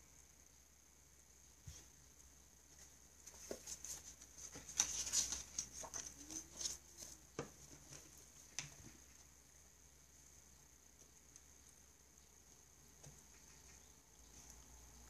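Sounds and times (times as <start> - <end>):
paper rustling: 2.7 - 9.2.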